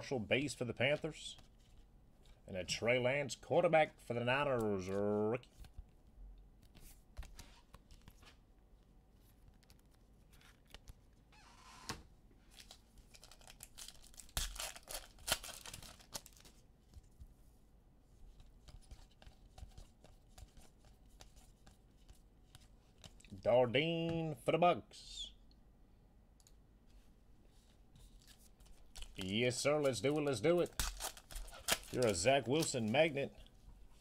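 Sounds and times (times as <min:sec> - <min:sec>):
foil wrapper tearing: 0:12.5 - 0:16.6, 0:29.0 - 0:32.9
cards clicking and rustling: 0:12.5 - 0:17.0, 0:28.2 - 0:33.4.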